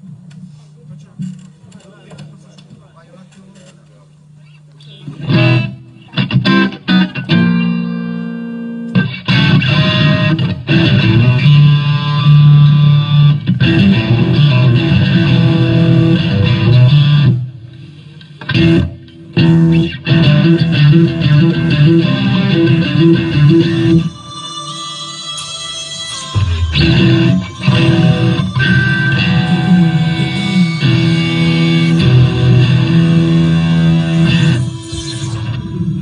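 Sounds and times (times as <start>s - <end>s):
electric guitar with effects: 4.8s - 36.0s
band playing instrumental: 20.3s - 36.0s.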